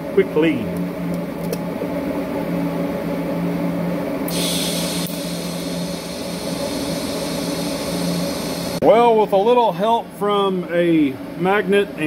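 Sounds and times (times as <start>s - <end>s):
welder humming: 1.1s - 9.3s
welding arc hissing: 4.3s - 8.8s.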